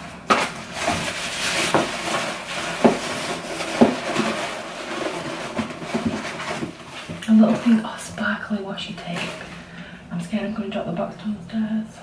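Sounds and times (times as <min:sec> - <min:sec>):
packaging rustling and crinkling: 0:00.0 - 0:07.8.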